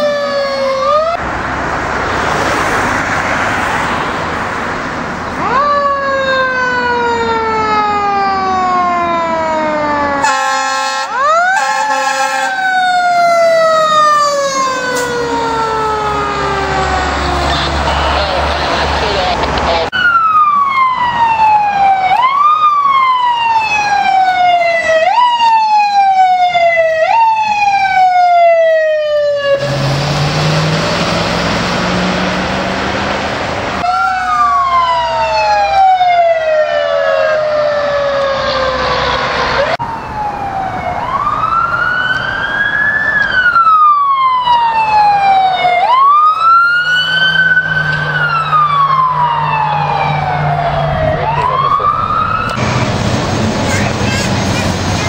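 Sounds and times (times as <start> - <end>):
fire truck sirens wailing: 0.0 - 55.0
low air horn blast: 10.2 - 12.7.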